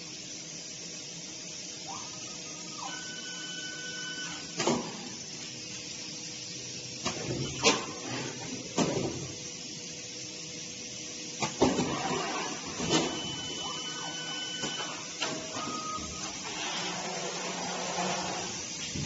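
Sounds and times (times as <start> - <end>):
machinery hum: 0.0 - 19.0
motor whine: 1.8 - 5.3, 11.8 - 19.0.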